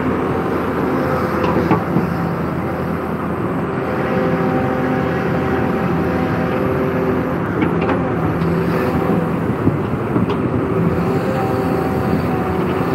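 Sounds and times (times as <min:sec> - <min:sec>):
excavator diesel engine running: 0:00.0 - 0:12.9.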